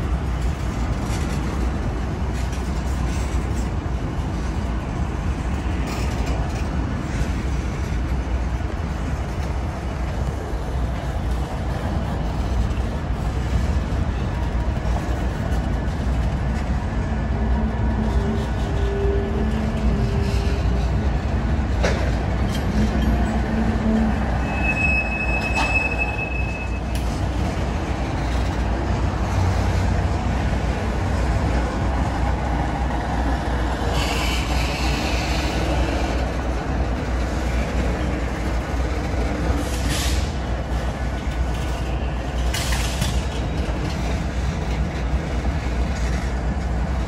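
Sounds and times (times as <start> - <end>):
train wheels rumbling on rails: 0.0 - 47.0
high-pitched wheel squeal: 23.8 - 27.0.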